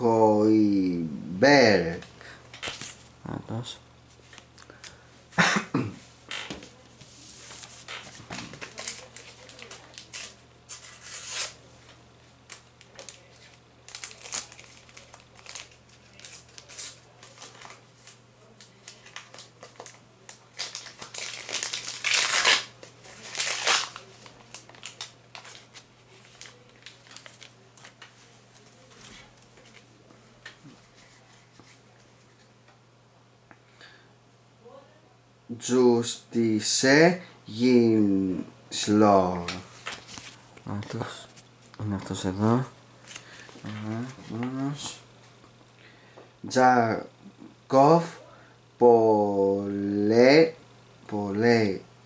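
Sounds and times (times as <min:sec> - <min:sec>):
paper stickers rustling: 0:07.4 - 0:11.6, 0:12.5 - 0:31.8.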